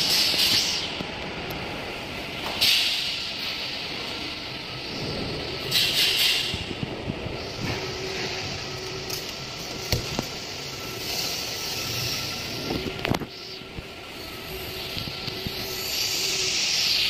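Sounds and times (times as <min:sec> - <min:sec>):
hiss: 0:00.0 - 0:01.0, 0:01.7 - 0:17.0
workshop mechanical noise: 0:00.0 - 0:17.0.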